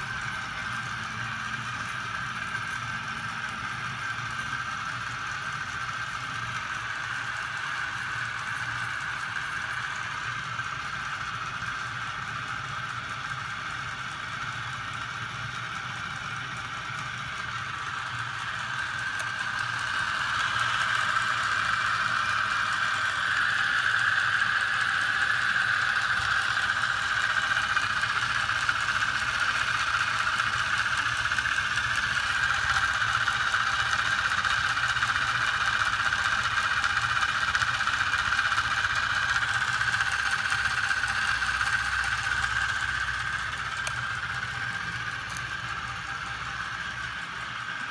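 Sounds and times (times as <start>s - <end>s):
small electric motor whining: 0.0s - 47.9s.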